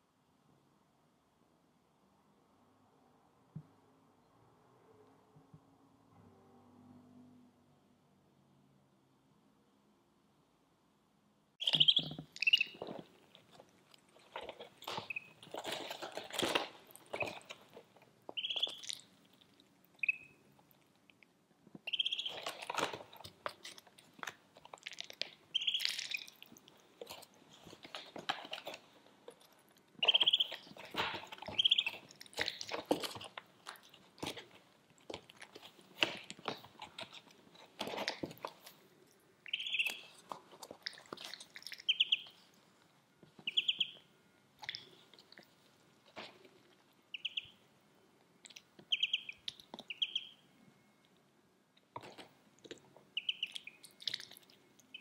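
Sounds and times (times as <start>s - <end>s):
duckling peeps: 11.6s - 13.0s, 14.3s - 17.6s, 18.3s - 19.1s, 20.0s - 20.4s, 21.8s - 23.1s, 25.5s - 26.4s, 30.0s - 32.8s, 39.5s - 40.2s, 41.8s - 42.4s, 43.4s - 44.1s, 47.1s - 47.6s, 48.4s - 50.4s, 53.1s - 54.3s
ducklings pecking feed pellets: 11.6s - 21.0s, 21.8s - 38.8s, 39.5s - 42.5s, 43.4s - 44.0s, 46.1s - 47.6s, 48.4s - 50.4s, 51.9s - 55.0s.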